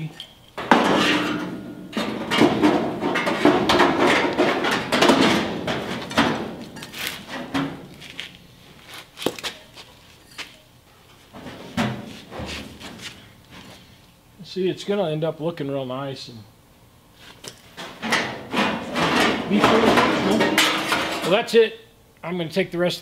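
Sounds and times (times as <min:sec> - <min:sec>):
sheet metal clattering and scraping: 0:00.6 - 0:08.4, 0:17.7 - 0:21.4.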